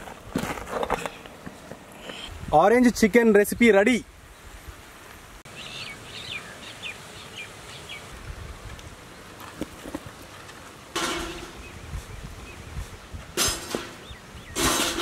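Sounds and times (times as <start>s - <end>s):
outdoor background noise: 0.0s - 15.0s
bird chirping: 5.5s - 8.1s.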